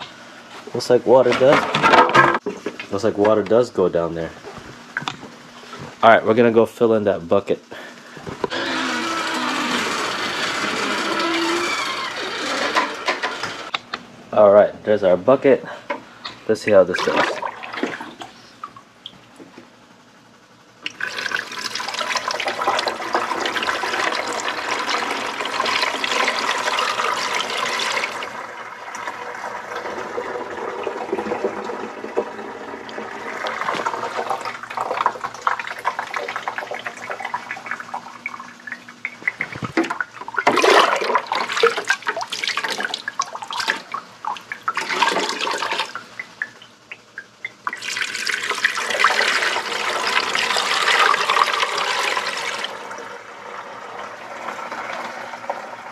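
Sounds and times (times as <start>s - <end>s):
water pouring into a tank: 20.8s - 46.6s, 47.5s - 55.9s
water splashing and sloshing: 28.0s - 49.3s.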